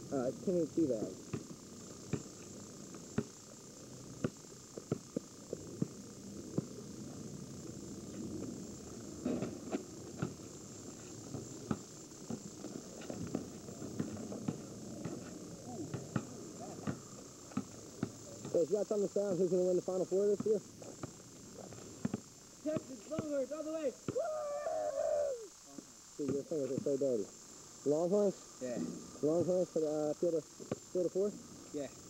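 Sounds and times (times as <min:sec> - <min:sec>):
faint high-pitched whine: 0:00.0 - 0:32.0
basketball bouncing on pavement: 0:01.3 - 0:02.4, 0:03.1 - 0:03.3, 0:04.2 - 0:06.8, 0:09.2 - 0:10.4, 0:11.3 - 0:18.6, 0:20.2 - 0:23.4
ball striking hoop and backboard: 0:22.8 - 0:23.3.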